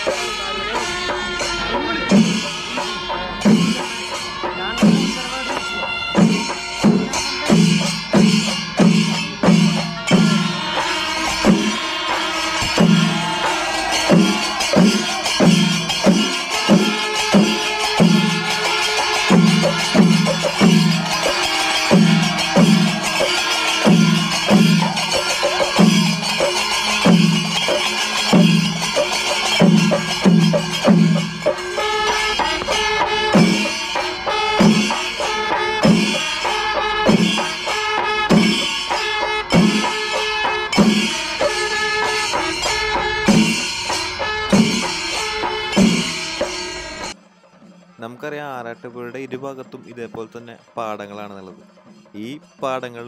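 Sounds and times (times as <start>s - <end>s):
drum-led music: 0.0s - 53.0s.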